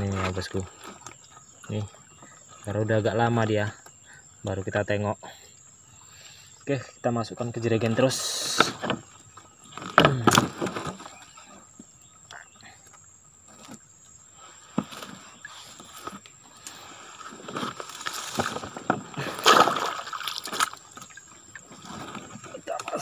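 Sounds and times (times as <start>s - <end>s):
water sloshing: 7.8s - 23.0s
loud splash: 19.2s - 20.8s.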